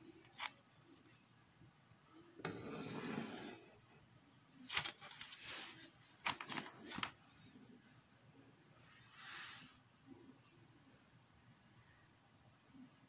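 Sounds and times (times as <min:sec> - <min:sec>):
paper rustling: 0:04.7 - 0:07.2.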